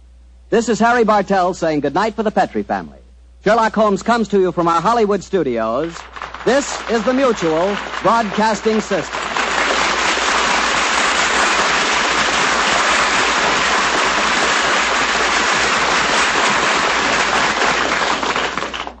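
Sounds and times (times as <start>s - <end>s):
dense crackling noise: 3.4s - 19.0s.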